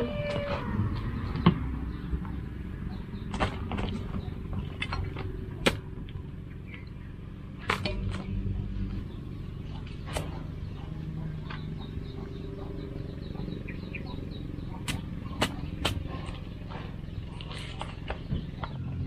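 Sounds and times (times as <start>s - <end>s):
knife chopping through fruit: 14.9s - 16.4s.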